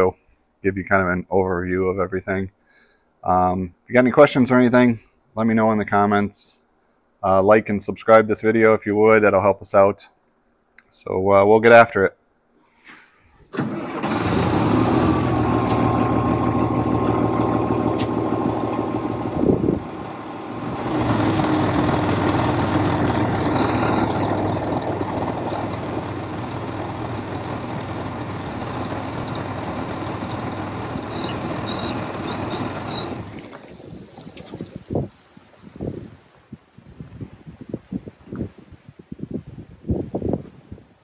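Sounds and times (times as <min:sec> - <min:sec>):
diesel engine running: 0:13.6 - 0:33.5
hydraulic whine: 0:13.6 - 0:33.6.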